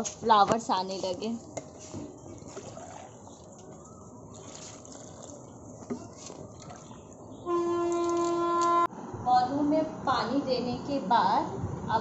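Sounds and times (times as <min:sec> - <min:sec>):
water trickling into pots: 0:00.0 - 0:08.8.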